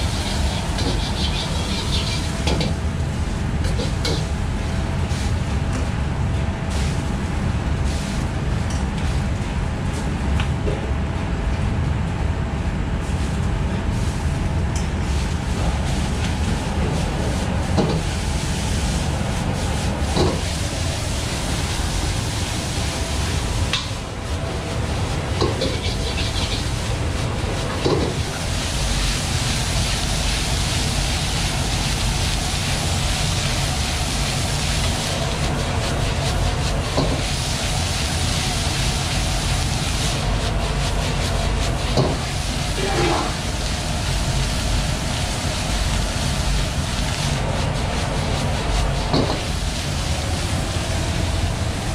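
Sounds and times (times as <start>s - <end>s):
metal ladle scraping wok: 0.0s - 2.6s, 25.4s - 26.8s
rice sizzling in wok: 0.0s - 5.6s, 15.0s - 51.9s
gas burner rumble: 0.0s - 51.9s.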